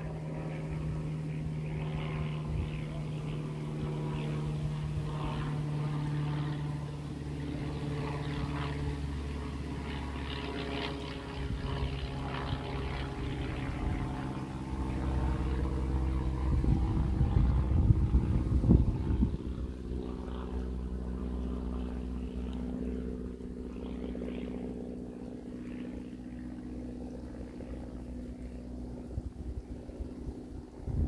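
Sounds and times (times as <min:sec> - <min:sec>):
low engine drone: 0:00.0 - 0:31.0.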